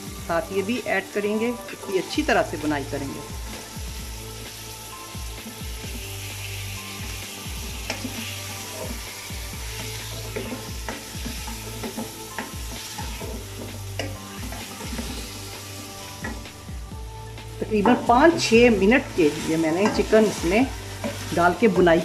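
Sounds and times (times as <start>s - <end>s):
chicken sizzling in hot oil: 0.0s - 22.0s
wooden spoon stirring and scraping: 7.0s - 16.4s, 17.7s - 22.0s.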